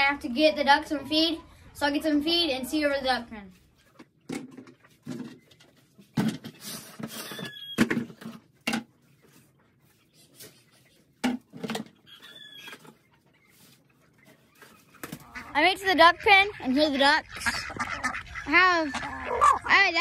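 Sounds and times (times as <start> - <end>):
short squeaks: 7.0 - 7.9.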